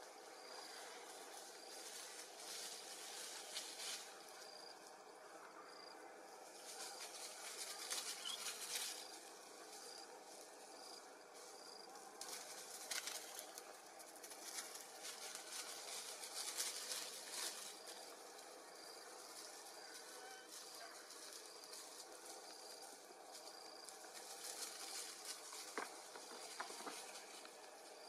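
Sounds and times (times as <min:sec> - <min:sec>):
dry crackling rustles: 0:00.1 - 0:05.4, 0:06.3 - 0:28.0.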